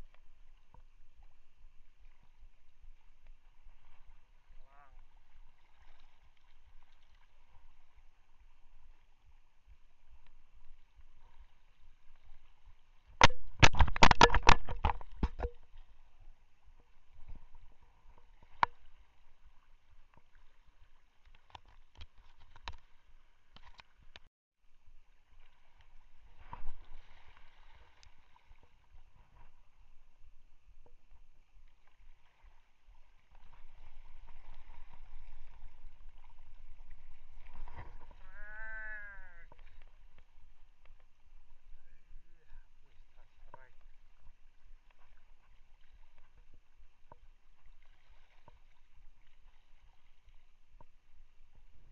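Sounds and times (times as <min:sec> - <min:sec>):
water lapping: 0:00.0 - 0:51.9
wind: 0:00.0 - 0:51.9.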